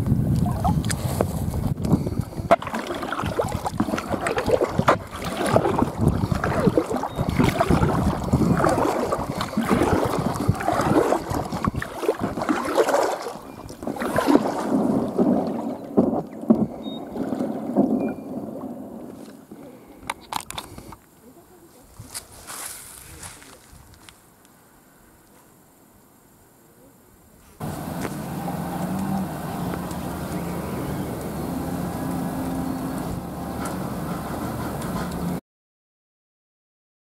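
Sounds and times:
wind on microphone: 0:00.0 - 0:21.0
water lapping at kayak hull: 0:00.3 - 0:20.9
paddle splashing in water: 0:02.2 - 0:19.9.

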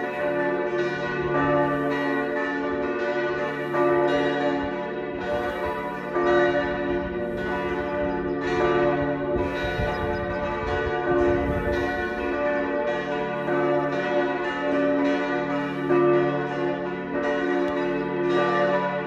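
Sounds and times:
church bells ringing: 0:00.0 - 0:19.0.

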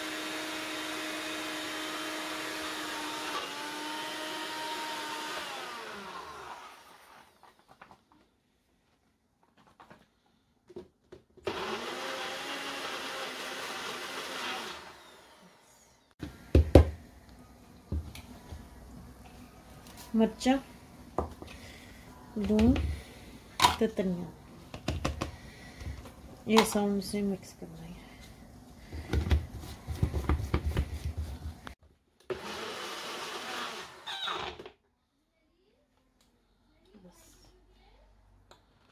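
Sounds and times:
blender running: 0:00.0 - 0:07.3, 0:11.4 - 0:16.0, 0:32.3 - 0:34.4.

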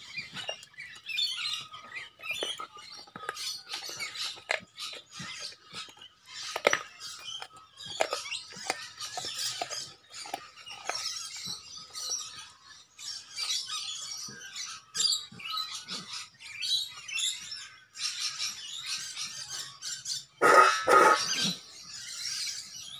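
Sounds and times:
dog gnawing a bone: 0:00.0 - 0:12.4.

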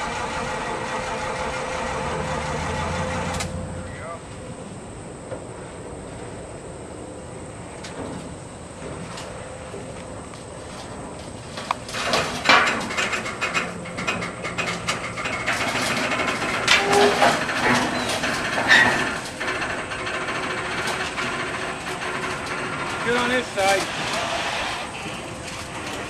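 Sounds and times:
truck clanking off trailer: 0:00.0 - 0:04.1, 0:11.5 - 0:26.0
short squeaks: 0:16.1 - 0:19.3.

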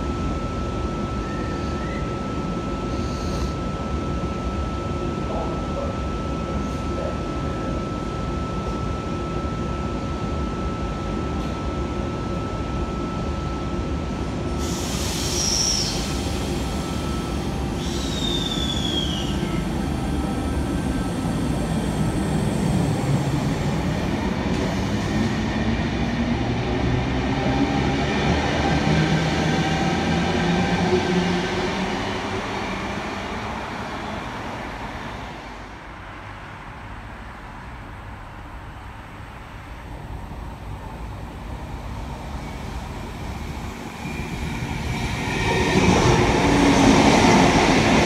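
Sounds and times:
high wheel squeals: 0:17.8 - 0:19.8.

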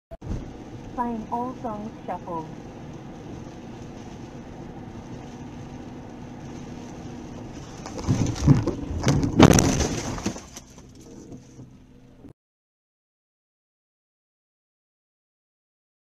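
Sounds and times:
road noise inside car: 0:00.1 - 0:12.3
car collision impacts: 0:07.6 - 0:11.6.

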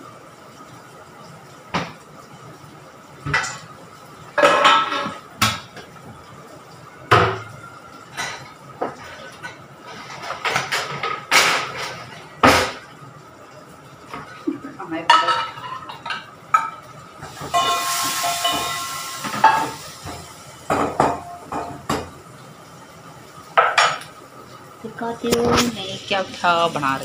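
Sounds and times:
pots and utensils clinking: 0:03.3 - 0:03.7, 0:04.4 - 0:05.8, 0:07.1 - 0:12.9, 0:15.0 - 0:22.2, 0:23.6 - 0:24.2.

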